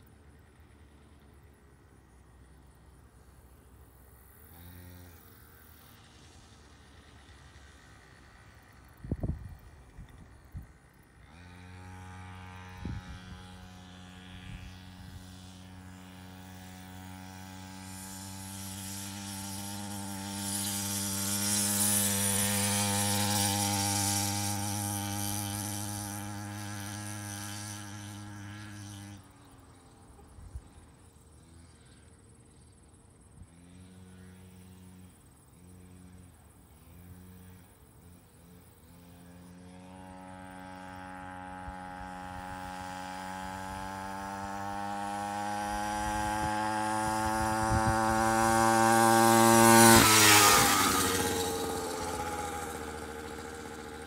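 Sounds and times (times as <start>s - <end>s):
two-stroke dirt bike engine buzz: 0.0s - 54.0s.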